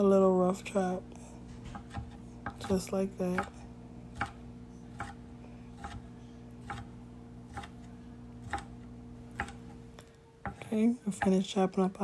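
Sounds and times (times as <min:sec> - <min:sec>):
faint steady hum: 0:00.0 - 0:12.0
knife chopping on wooden board: 0:01.6 - 0:05.2, 0:05.8 - 0:06.0, 0:06.6 - 0:06.9, 0:07.5 - 0:07.8, 0:08.4 - 0:09.8, 0:10.4 - 0:11.4.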